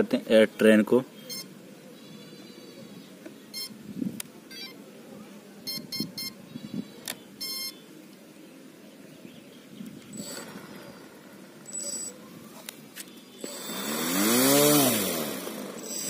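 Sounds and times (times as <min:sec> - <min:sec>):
electronic start-up beeps: 0:01.3 - 0:01.5, 0:03.5 - 0:03.7, 0:05.7 - 0:06.4, 0:07.4 - 0:07.8, 0:11.6 - 0:12.2.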